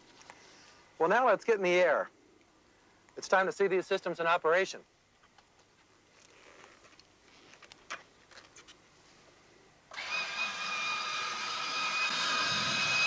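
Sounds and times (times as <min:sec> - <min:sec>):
high-pitched jet whine: 0:09.9 - 0:13.0.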